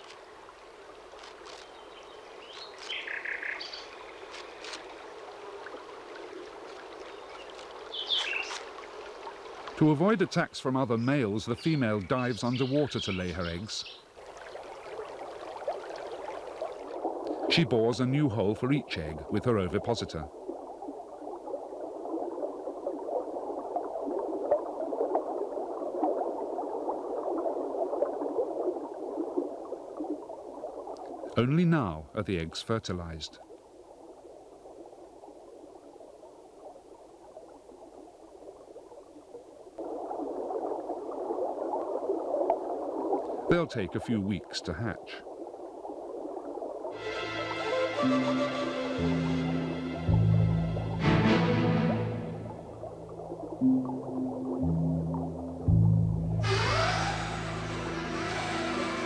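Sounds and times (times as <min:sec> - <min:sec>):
running water: 0:00.0 - 0:59.0
underwater bubbling: 0:04.0 - 0:31.4, 0:33.4 - 0:59.0
birds chirping: 0:07.1 - 0:08.6, 0:10.8 - 0:14.1.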